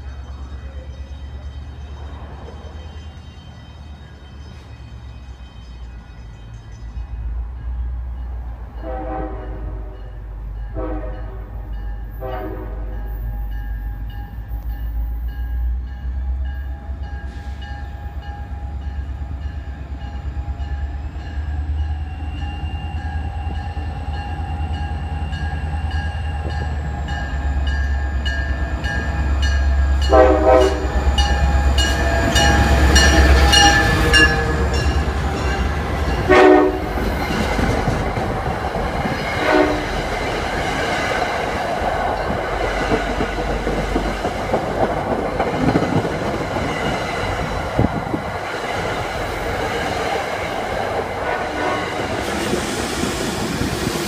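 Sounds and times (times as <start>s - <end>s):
locomotive horn blasts: 8.8s - 11.6s, 12.2s - 13.1s, 30.0s - 35.2s, 36.1s - 37.1s, 39.4s - 40.1s, 51.2s - 52.3s
locomotive engine rumble: 11.4s - 54.0s
train wheel noise: 11.8s - 54.0s.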